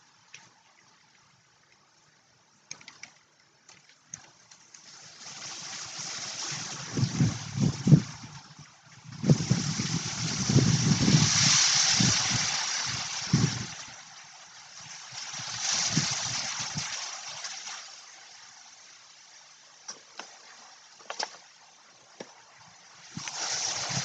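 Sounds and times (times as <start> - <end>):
wind gusting through leaves: 4.2 - 24.0.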